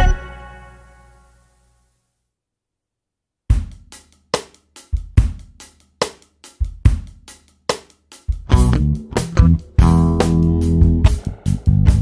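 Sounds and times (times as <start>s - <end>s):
drum kit beat: 3.5s - 12.0s.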